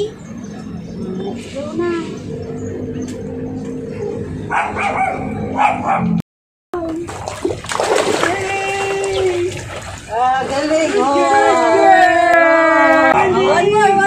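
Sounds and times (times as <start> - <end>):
water splashing: 6.8 - 12.3.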